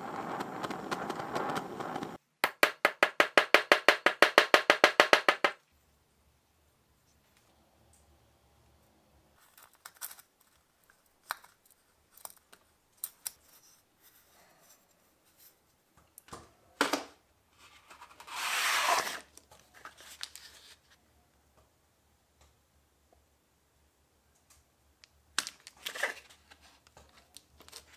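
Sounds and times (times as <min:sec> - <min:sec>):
rustling scrape: 0:17.5 - 0:21.0.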